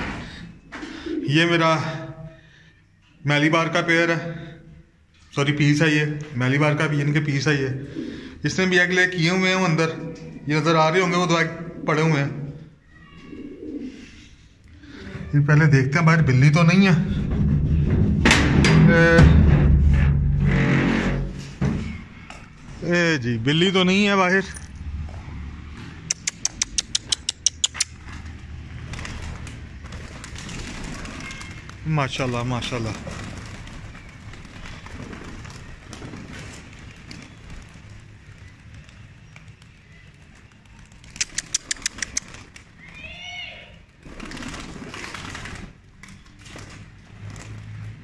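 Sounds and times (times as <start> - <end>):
sharp wing claps: 26.0 - 28.2, 41.0 - 42.6
pigeon wings clapping: 26.1 - 48.0.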